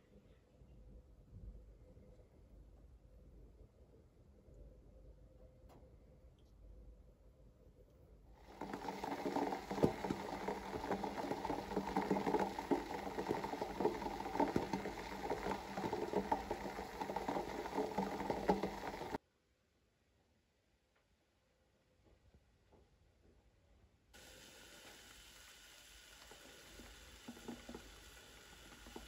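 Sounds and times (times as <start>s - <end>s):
water boiling hard in pot: 8.4s - 19.2s, 24.2s - 29.0s.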